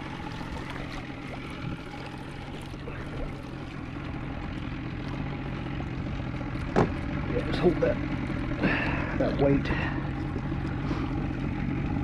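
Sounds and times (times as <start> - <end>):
low steady hum: 0.0 - 12.0
water lapping against boat: 0.0 - 12.0
light knocks: 6.7 - 7.0.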